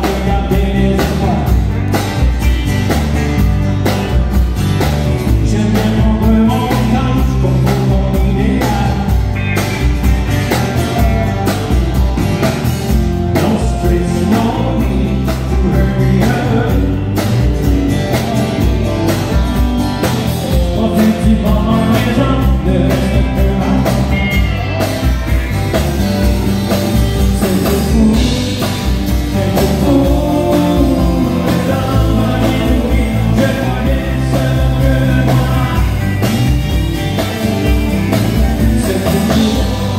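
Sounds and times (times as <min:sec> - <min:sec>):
man singing: 0:00.0 - 0:01.8, 0:05.2 - 0:09.5, 0:13.0 - 0:24.6, 0:27.0 - 0:39.9
live country band playing: 0:00.0 - 0:39.9.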